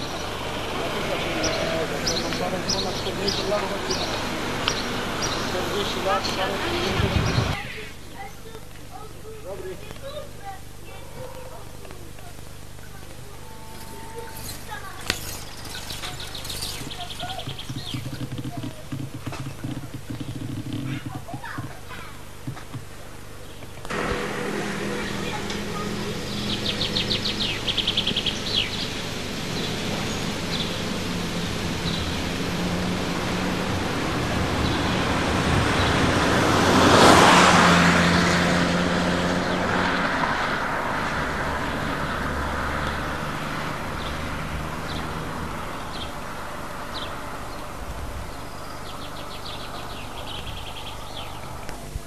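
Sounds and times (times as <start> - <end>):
car passing by: 0.0 - 7.6, 23.9 - 47.8
birds chirping: 0.0 - 52.0
road and engine hum: 0.0 - 52.0.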